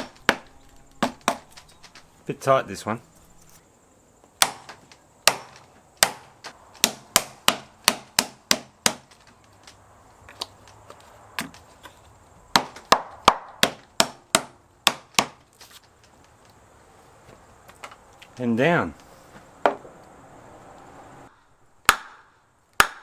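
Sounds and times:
hammer knocking on wood: 0.0 - 1.4, 19.6 - 19.9.

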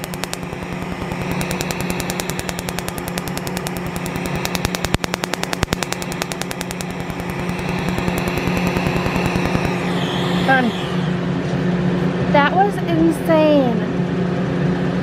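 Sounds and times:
laser snapping pulses: 0.0 - 10.7
steady machine hum: 0.0 - 15.0.

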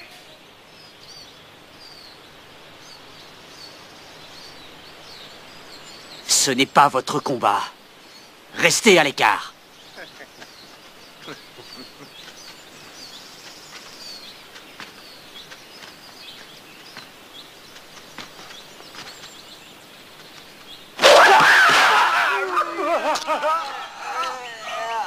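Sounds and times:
faint bird chirps: 0.0 - 25.0
low hiss: 0.0 - 25.0
sudden loud yell: 21.0 - 25.0.

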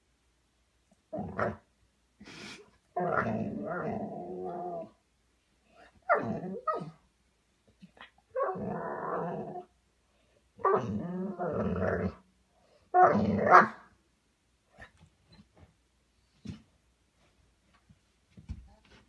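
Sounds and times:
puppy growling: 3.0 - 4.9, 8.0 - 9.7, 10.6 - 12.2.

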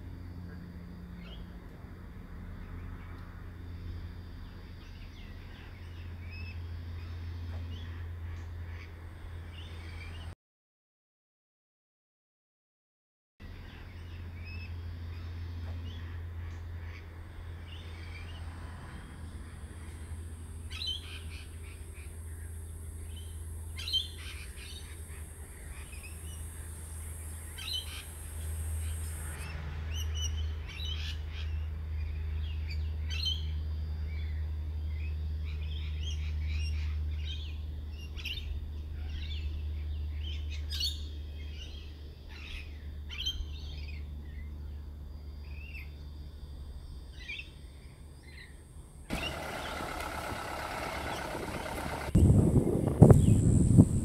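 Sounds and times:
birds chirping and calling: 20.7 - 29.3, 49.1 - 54.0
low rumble: 49.1 - 54.0.

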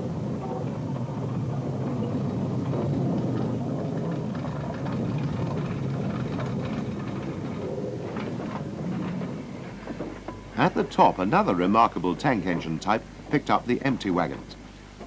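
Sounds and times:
clanks and knocks: 0.0 - 15.0
steam locomotive rumbling: 0.0 - 15.0.

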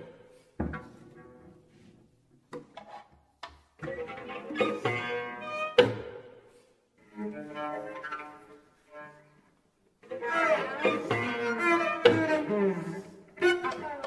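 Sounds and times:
cello playing: 3.8 - 5.8, 7.0 - 14.0.

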